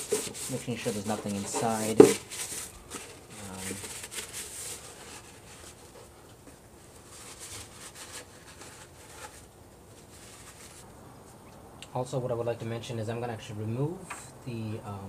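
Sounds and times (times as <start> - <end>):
paper towel rustling in plastic box: 0.0 - 10.8.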